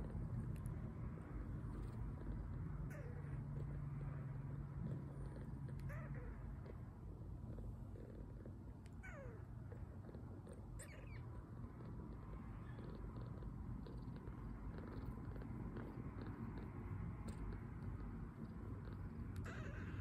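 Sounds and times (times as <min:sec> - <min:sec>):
kitten purring: 0:00.0 - 0:20.0
kitten squeaking: 0:02.8 - 0:03.4, 0:05.2 - 0:06.5, 0:08.9 - 0:09.8, 0:10.7 - 0:12.0, 0:19.3 - 0:20.0.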